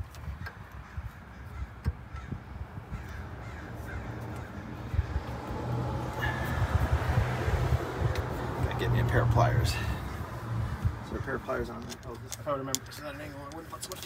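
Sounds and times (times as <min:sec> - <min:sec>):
crows cawing: 0:00.4 - 0:05.6, 0:11.0 - 0:11.6.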